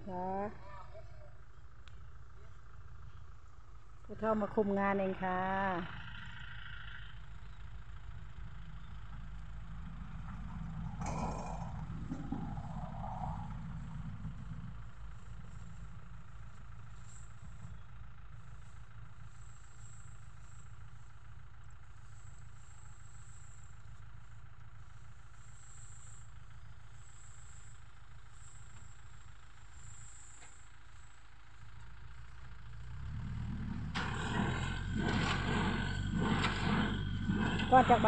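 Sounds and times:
tractor engine running: 1.3 - 38.0.

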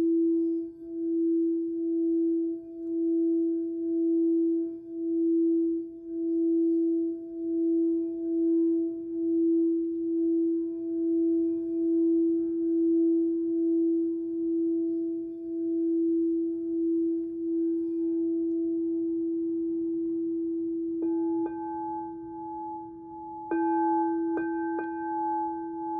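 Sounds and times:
singing bowl drone: 0.0 - 25.9.

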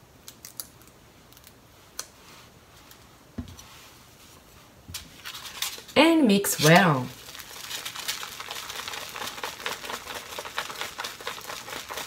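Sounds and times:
chopsticks stirring in container: 6.6 - 12.0.

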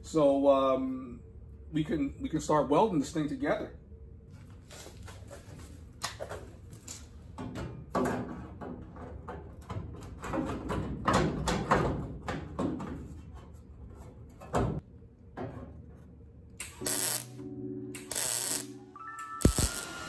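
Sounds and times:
metal clunks and knocks: 7.3 - 13.4.

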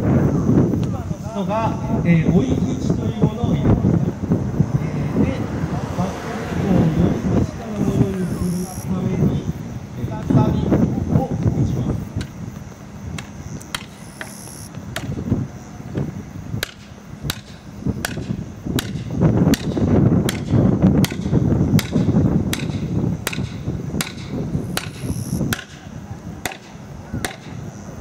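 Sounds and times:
low rumbling noise: 0.0 - 28.0
wedge strikes: 13.2 - 14.4, 16.6 - 25.8.

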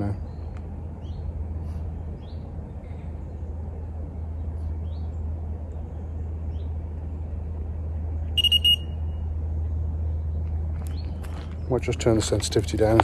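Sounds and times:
bite alarm high beeps: 8.4 - 9.0.

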